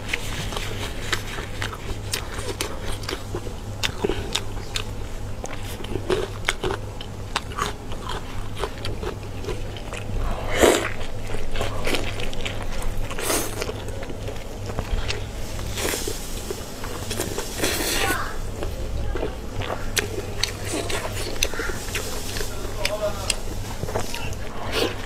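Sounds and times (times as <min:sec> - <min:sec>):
steady low hum: 0:00.0 - 0:25.0
wet chewing and lip smacks: 0:00.1 - 0:25.0
loud squelches: 0:14.9 - 0:25.0.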